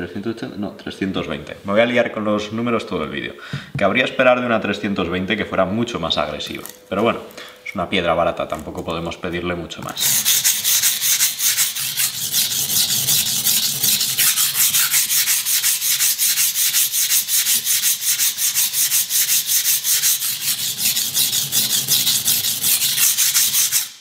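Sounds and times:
knife grinding on whetstone: 10.0 - 24.0.

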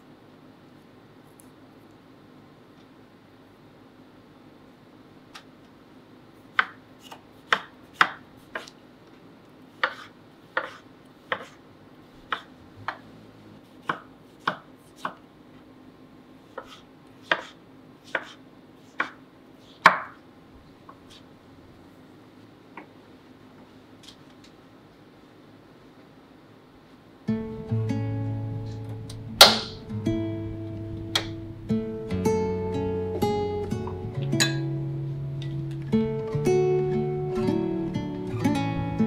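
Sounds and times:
knife striking cutting board: 9.8 - 11.6, 16.6 - 18.4, 29.4 - 29.8.

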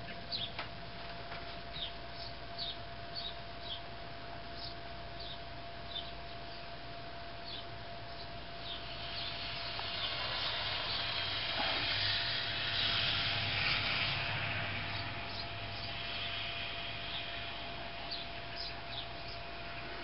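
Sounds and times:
car passing tyre noise: 8.8 - 20.0.

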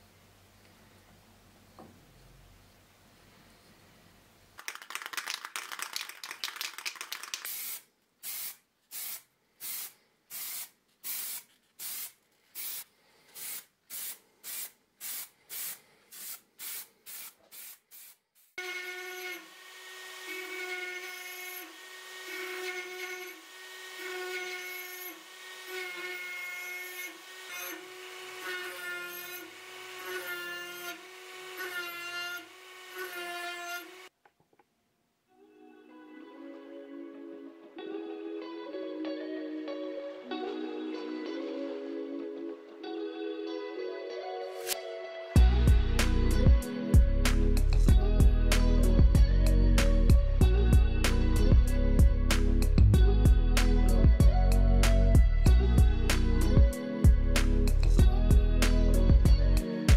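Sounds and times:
spray paint hissing: 7.4 - 18.6
instrumental background music: 35.4 - 59.9.

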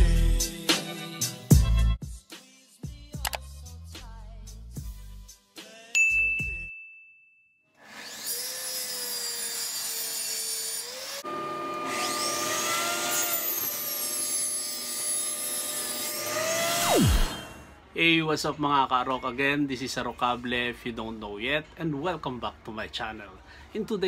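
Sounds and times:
notification bell ding: 6.0 - 7.5
table saw cutting board: 7.8 - 17.8.

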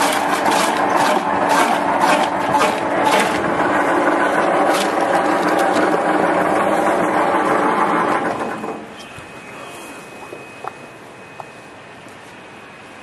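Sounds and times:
vegetable dicing machine running: 0.0 - 8.9.

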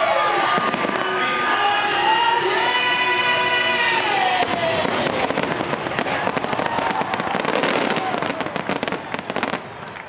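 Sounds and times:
fireworks crackling and popping: 0.4 - 1.4, 3.6 - 10.0.

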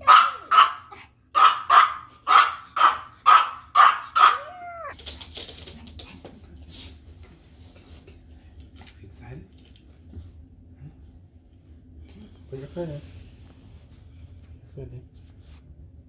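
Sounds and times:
puppy barking: 0.0 - 5.0
puppy whining: 4.2 - 5.0.

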